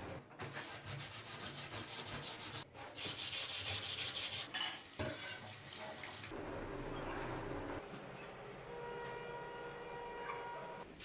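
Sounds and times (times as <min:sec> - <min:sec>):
steel wool scrubbing a knife blade: 0:00.5 - 0:04.6.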